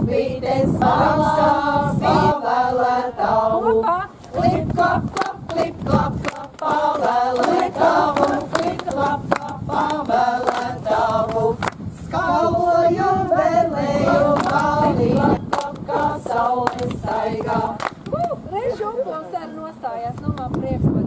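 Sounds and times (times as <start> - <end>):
women singing unaccompanied: 0.0 - 21.0
hand claps: 4.7 - 11.8, 14.4 - 17.0, 17.8 - 18.2.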